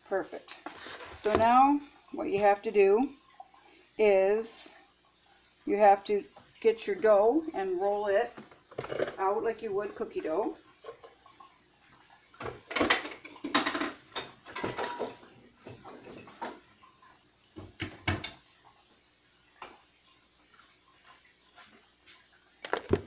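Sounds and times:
containers knocking and clattering: 8.3s - 9.4s, 12.4s - 16.7s, 22.6s - 23.0s.

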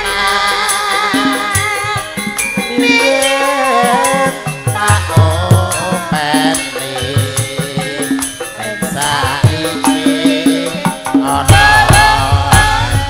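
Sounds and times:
gamelan ensemble playing: 0.0s - 13.0s
woman singing into microphone: 0.0s - 13.0s
low drumming: 3.9s - 13.0s.

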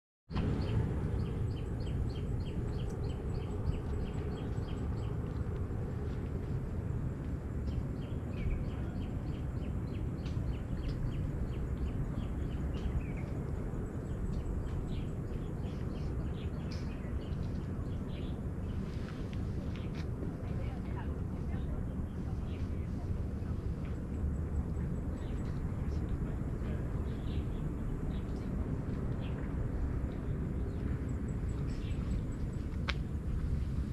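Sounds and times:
steady low rumble: 0.3s - 33.9s
birds chirping: 7.7s - 32.8s.

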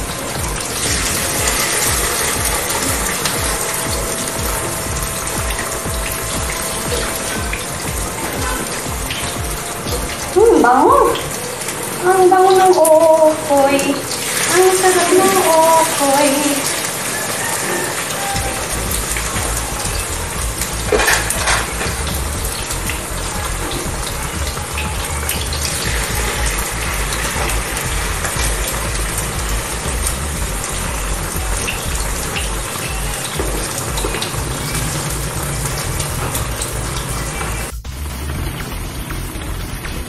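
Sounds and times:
fritters sizzling in oil: 0.0s - 40.0s
liquid boiling in a wok: 13.9s - 37.8s
spatula working in a pan: 14.0s - 37.7s.

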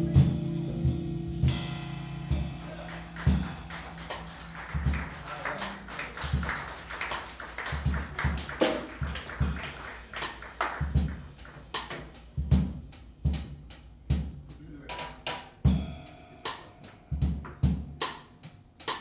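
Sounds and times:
jazz band playing: 0.0s - 14.6s
snare and cymbal hits: 7.1s - 19.0s
bass drum thumps: 10.8s - 14.5s.

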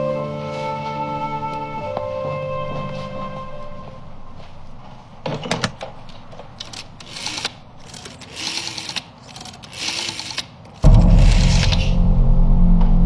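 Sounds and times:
rotary dial whirring and clicking: 6.6s - 10.9s.

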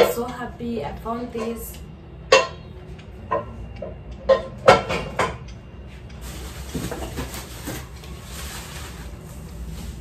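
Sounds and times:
packaging rustling: 6.2s - 10.0s.

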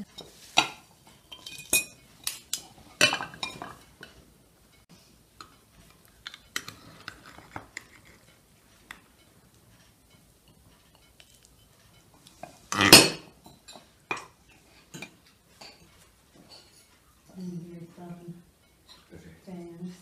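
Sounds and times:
metal utensils clinking on plates: 0.0s - 4.2s, 5.4s - 9.1s, 10.4s - 17.0s, 18.7s - 19.1s.

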